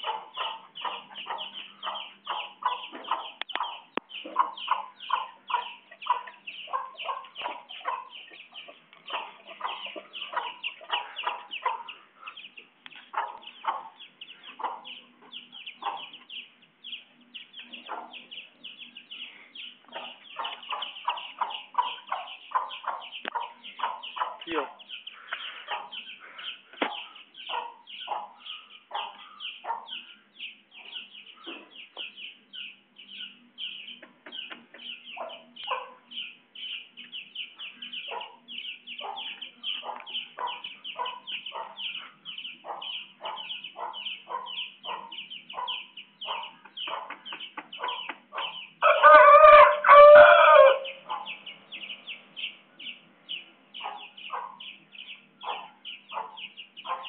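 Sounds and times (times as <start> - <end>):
chicken clucking: 0.0 - 52.9, 53.8 - 57.0
high chirping: 0.0 - 57.0
rooster crowing: 48.8 - 51.0.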